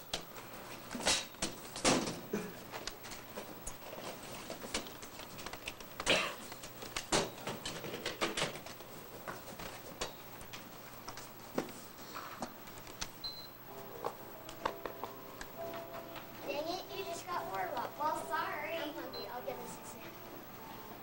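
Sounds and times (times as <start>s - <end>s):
soft shuffling: 8.7s - 21.0s.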